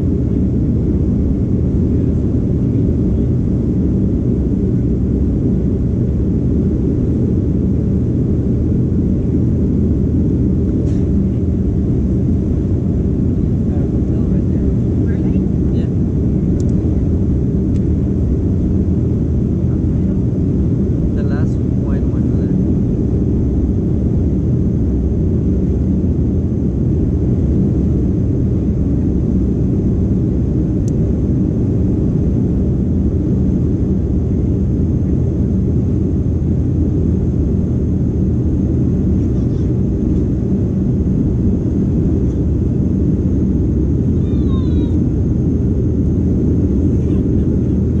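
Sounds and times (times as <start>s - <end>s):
airplane cabin rumble: 0.0s - 48.0s.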